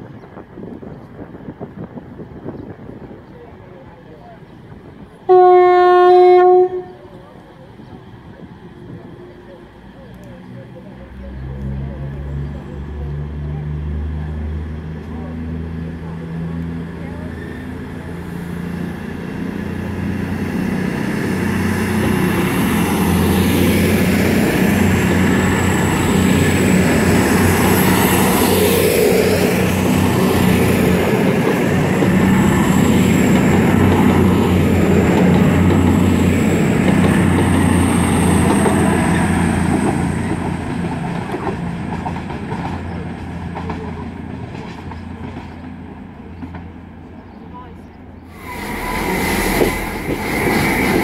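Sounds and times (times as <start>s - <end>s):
diesel train passing: 0.0s - 51.0s
thin high whistle: 48.3s - 50.9s.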